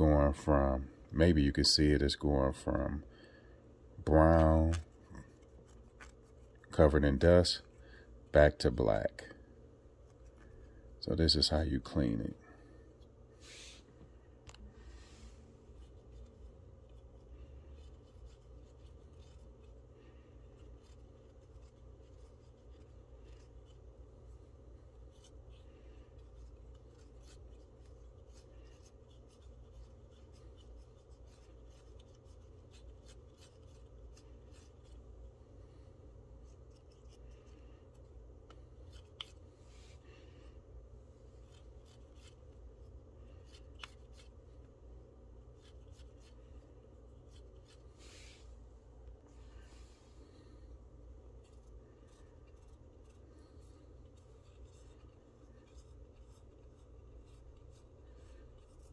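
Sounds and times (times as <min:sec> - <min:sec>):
low room hum: 0:00.0 - 0:58.9
swab rubbing plastic fan blades: 0:15.7 - 0:35.4, 0:41.4 - 0:48.4, 0:50.2 - 0:58.9.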